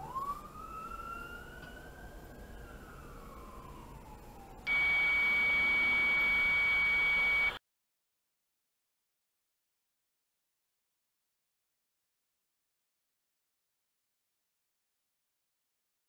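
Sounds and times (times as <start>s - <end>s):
fire siren wailing: 0.0s - 7.6s
loud steady horn tone: 4.7s - 7.6s.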